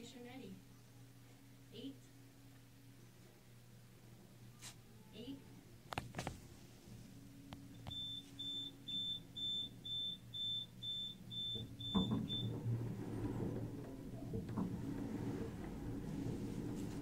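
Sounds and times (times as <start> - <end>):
low rumble with clatter: 11.6 - 17.0.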